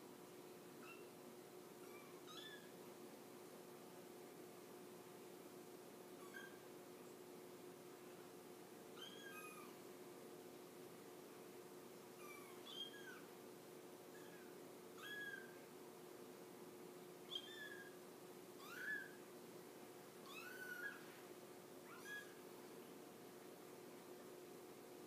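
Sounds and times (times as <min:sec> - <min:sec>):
faint steady hum: 0:00.0 - 0:25.0
kittens mewing: 0:20.3 - 0:21.0.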